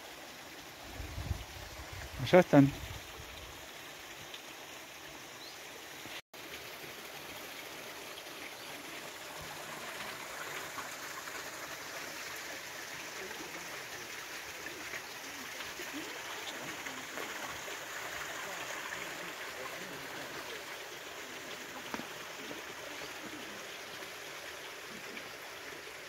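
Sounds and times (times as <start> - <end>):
running water: 0.0 - 26.0.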